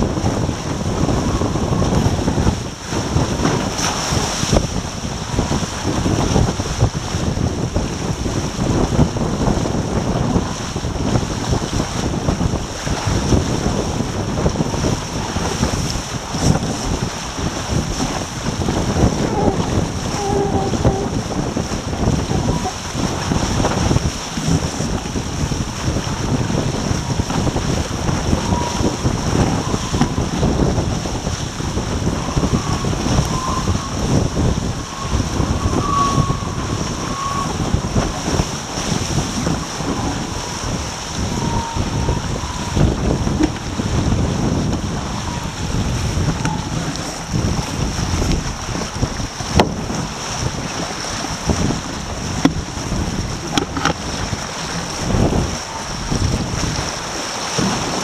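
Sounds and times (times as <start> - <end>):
water rushing along a hull: 0.0 - 58.0
wind buffeting microphone: 0.0 - 58.0
faint wavering whistle: 28.4 - 30.3, 32.1 - 37.8, 41.2 - 42.9, 45.1 - 45.7, 46.3 - 46.9.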